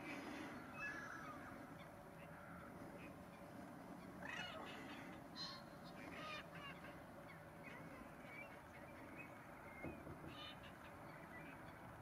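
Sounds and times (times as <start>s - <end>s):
bird calls: 0.0s - 12.0s.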